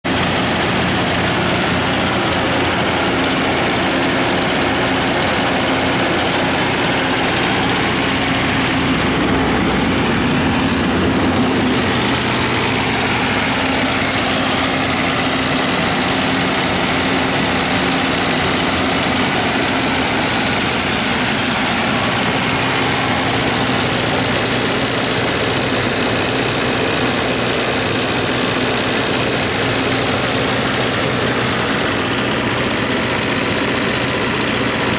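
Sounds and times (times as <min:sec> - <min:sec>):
diesel generator engine running: 0:00.0 - 0:34.9.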